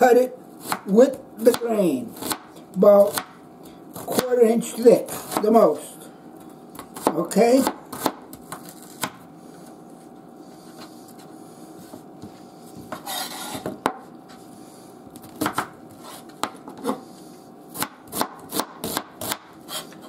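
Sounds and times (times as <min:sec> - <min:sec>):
person talking: 0:00.0 - 0:03.2, 0:04.1 - 0:06.1, 0:07.1 - 0:07.8
knife rasping stroke: 0:12.9 - 0:13.7, 0:19.6 - 0:20.0.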